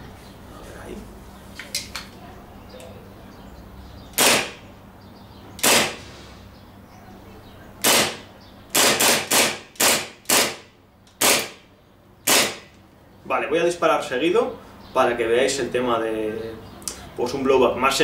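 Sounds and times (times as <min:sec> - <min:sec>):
airsoft pistol shots: 0:04.2 - 0:04.6, 0:05.6 - 0:06.0, 0:07.8 - 0:11.6, 0:12.2 - 0:12.7.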